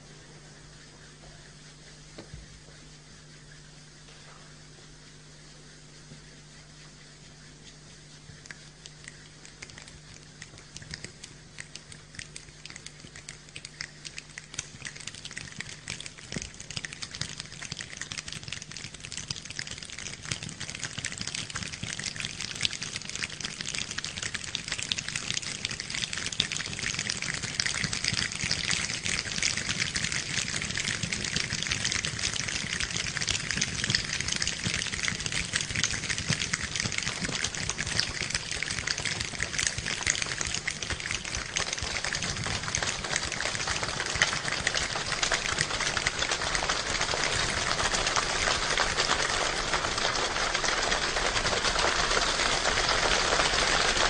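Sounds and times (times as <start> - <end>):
audience applause: 41.5 - 54.0.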